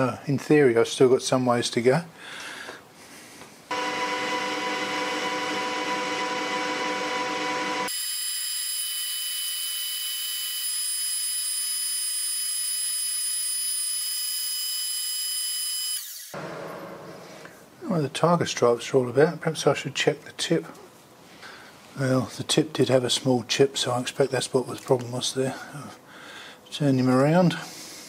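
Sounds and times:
metal lathe whining: 0:03.7 - 0:08.2.

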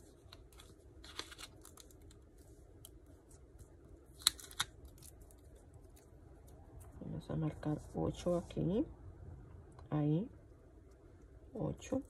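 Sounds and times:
paper rustling: 0:00.0 - 0:05.5.

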